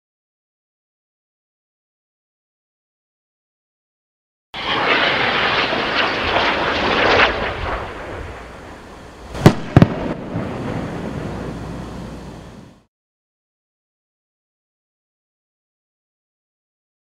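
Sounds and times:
sharp bangs: 0:04.6 - 0:12.8
low rush of noise: 0:04.6 - 0:12.9
rocket motor crackling and hissing: 0:04.6 - 0:12.9.

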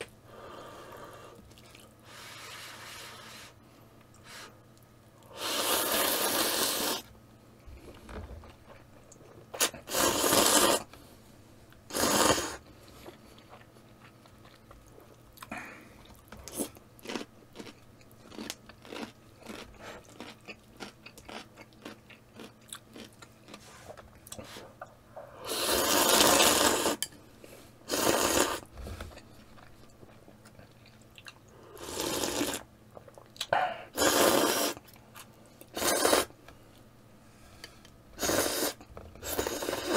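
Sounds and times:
loud noodle slurps: 0:05.4 - 0:07.0, 0:09.6 - 0:10.9, 0:11.9 - 0:12.6, 0:25.4 - 0:27.0, 0:27.9 - 0:28.7, 0:31.8 - 0:32.6, 0:34.0 - 0:34.8, 0:35.8 - 0:36.3, 0:38.2 - 0:39.9.

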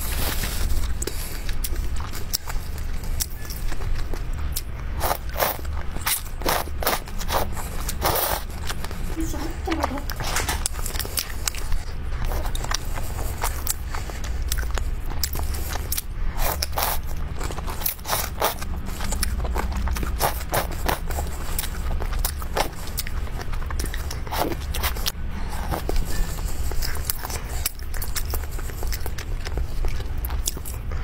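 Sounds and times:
steady low hum: 0:00.0 - 0:31.0
slurping noodles: 0:05.0 - 0:08.8
wet chewing and lip smacks: 0:10.1 - 0:31.0.

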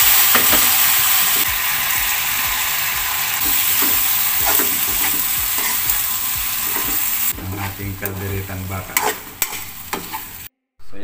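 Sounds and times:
food sizzling in a frying pan: 0:00.0 - 0:10.5
spatula scraping and knocking pan: 0:03.4 - 0:10.4.

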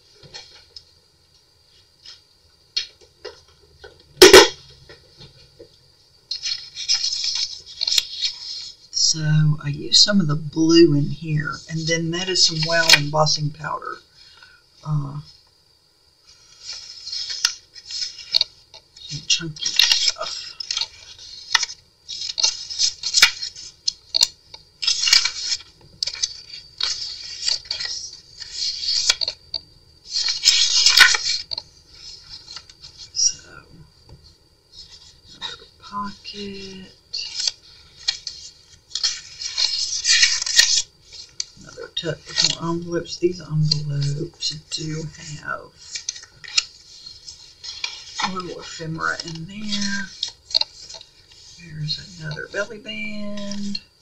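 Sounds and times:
paper pages rustling: 0:06.3 - 0:08.9, 0:16.3 - 0:33.2, 0:34.2 - 0:53.8.

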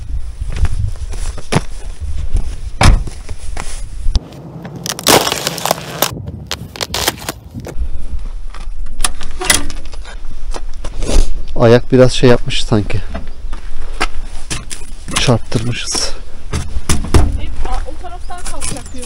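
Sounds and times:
footsteps crunching on frozen ground: 0:00.4 - 0:08.6
boot breaking thin ice: 0:04.8 - 0:07.4.

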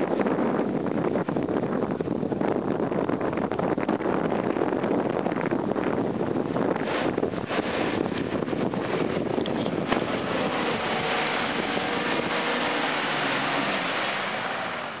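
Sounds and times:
vehicle engine running: 0:06.8 - 0:15.0
water splashing off tyres: 0:06.8 - 0:15.0.

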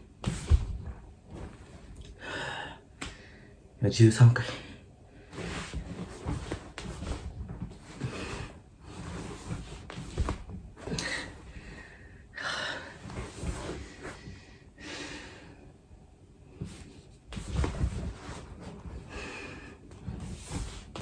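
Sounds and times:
body thumping on wooden floor: 0:00.2 - 0:01.7, 0:05.5 - 0:08.1, 0:08.9 - 0:11.0, 0:16.6 - 0:19.0
man breathing hard: 0:02.0 - 0:03.6, 0:10.9 - 0:15.8.

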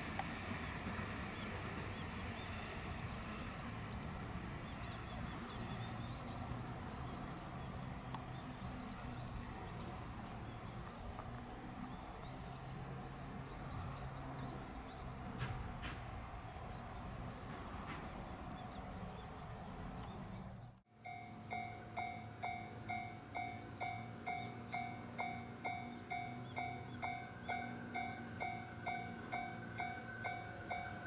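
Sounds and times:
level crossing warning bell ringing: 0:21.0 - 0:31.0.

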